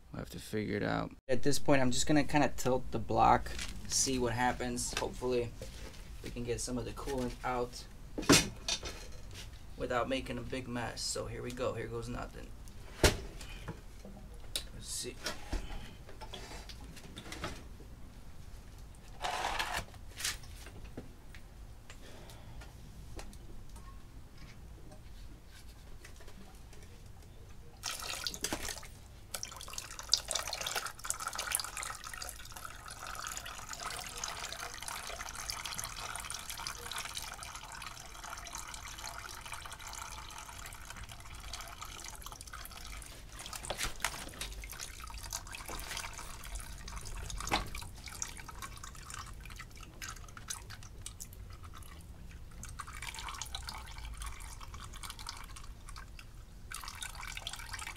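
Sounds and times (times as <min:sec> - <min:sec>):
coolant splashing into a tub: 0:27.8 - 0:57.9.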